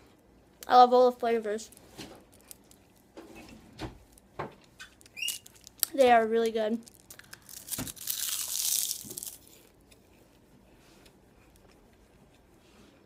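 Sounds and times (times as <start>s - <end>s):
crunching kale chip: 5.0s - 6.0s, 6.8s - 9.8s
faint chewing: 9.0s - 13.0s.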